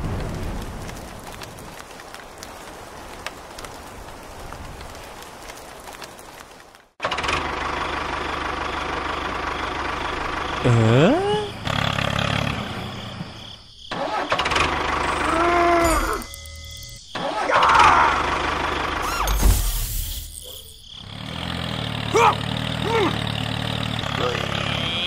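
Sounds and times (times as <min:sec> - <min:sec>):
tractor engine running: 0:07.0 - 0:15.5, 0:18.0 - 0:19.3, 0:21.0 - 0:25.0
short squeaky voice sounds: 0:19.0 - 0:19.8, 0:24.2 - 0:25.0.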